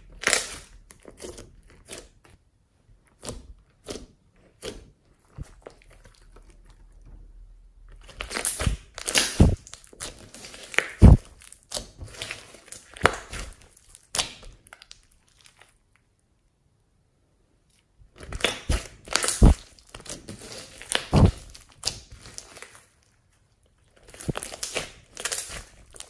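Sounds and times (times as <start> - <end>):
slime squeezed with wet crackles: 0.0 - 2.4, 7.9 - 16.1, 17.7 - 23.1, 23.9 - 26.0.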